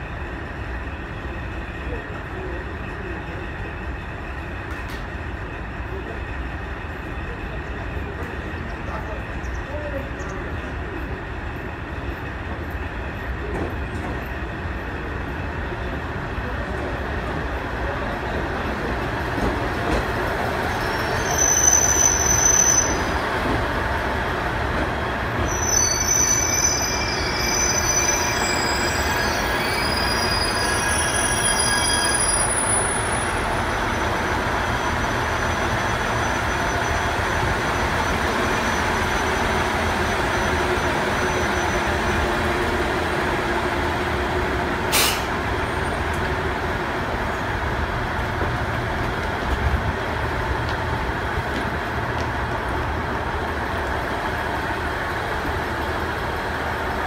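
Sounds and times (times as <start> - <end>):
train wheels squealing: 0.0 - 23.8, 25.2 - 42.8
train rumble: 0.0 - 57.0.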